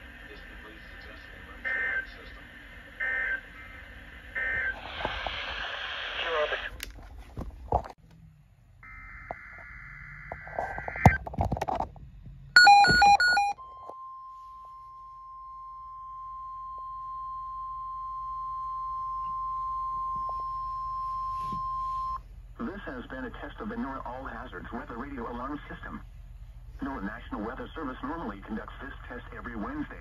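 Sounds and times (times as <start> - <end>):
steady alarm tone: 12.6 - 22.2.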